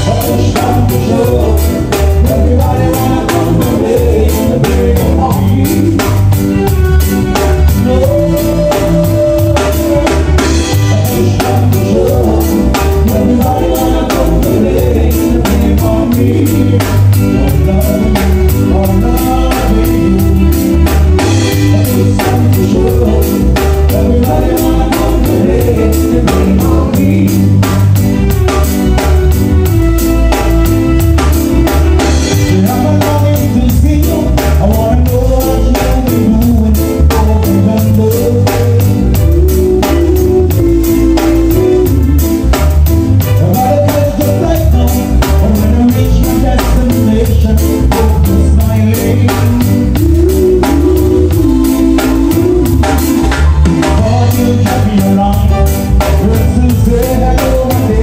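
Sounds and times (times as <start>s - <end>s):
drum kit: 0.0s - 58.0s
electric bass: 0.0s - 58.0s
keyboards: 0.0s - 58.0s.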